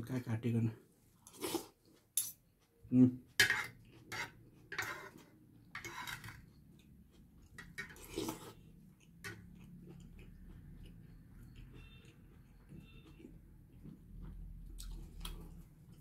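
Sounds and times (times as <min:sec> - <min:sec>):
cutlery scraping on a plate: 0:03.4 - 0:06.5, 0:07.6 - 0:08.6.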